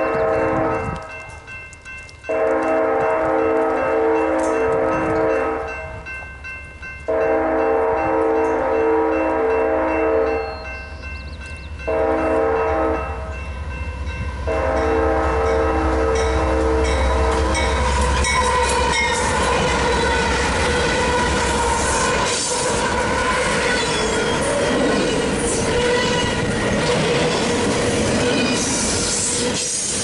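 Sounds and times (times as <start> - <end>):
locomotive air horn blasts: 0.0 - 1.2, 2.3 - 6.0, 7.1 - 10.5, 11.9 - 13.4, 14.4 - 24.6, 25.5 - 26.6
train wheels rattling over rails: 16.1 - 30.0.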